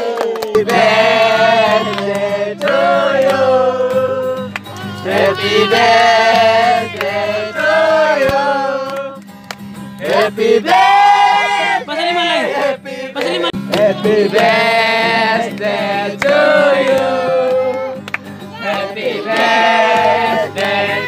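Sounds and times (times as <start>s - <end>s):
hand claps: 0.0s - 7.3s, 8.2s - 10.3s, 13.2s - 14.6s, 15.3s - 21.0s
men singing together: 0.0s - 9.2s, 10.0s - 21.0s
acoustic guitar: 0.0s - 21.0s.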